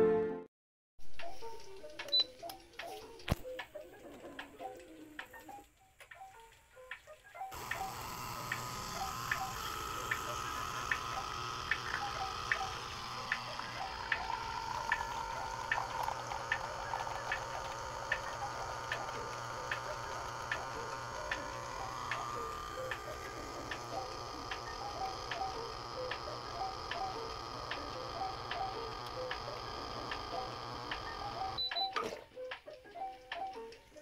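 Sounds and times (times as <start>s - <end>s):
steady ticking beat: 7.5s - 31.7s
soft background music: 22.2s - 34.0s.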